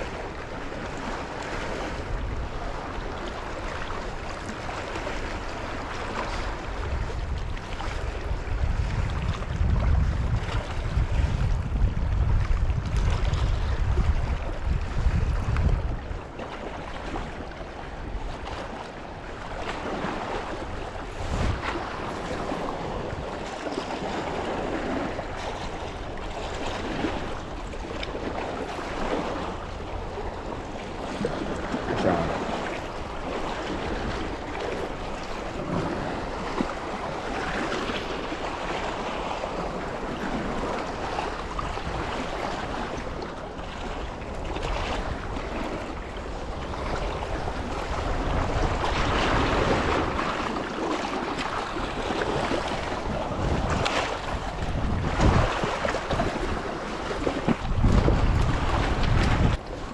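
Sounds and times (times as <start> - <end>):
river water rushing: 0.0 - 6.9, 16.2 - 43.5
wind buffeting microphone: 0.0 - 59.9.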